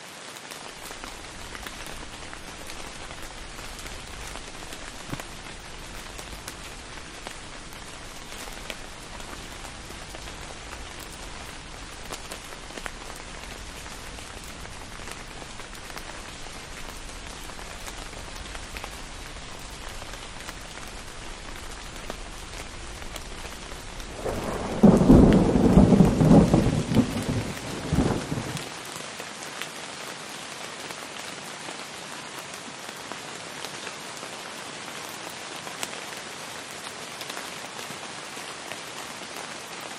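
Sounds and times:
heavy rain splashing: 0.0s - 39.9s
thunder clap rumbling: 1.0s - 28.7s.

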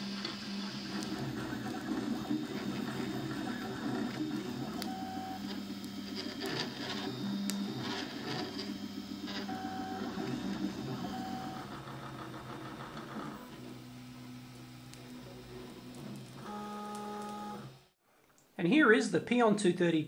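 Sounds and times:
stepper motors whining: 0.0s - 17.9s.

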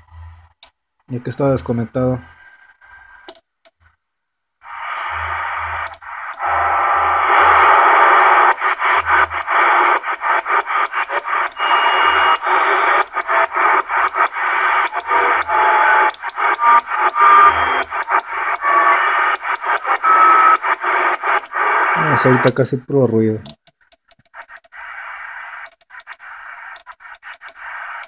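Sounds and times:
radio static: 4.6s - 23.4s, 24.4s - 28.0s
short radio whistles: 4.7s - 22.5s.

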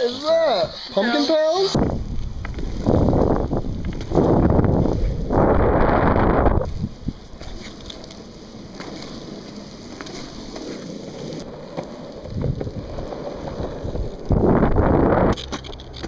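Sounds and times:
skateboard wheels rolling on asphalt: 0.0s - 16.0s
wind buffeting microphone: 1.8s - 7.6s, 12.2s - 15.5s.

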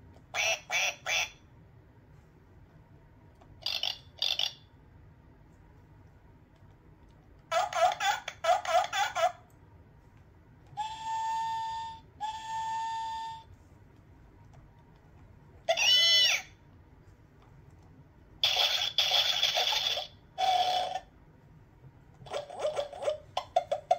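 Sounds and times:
whistle-like electronic tones: 10.8s - 13.5s.

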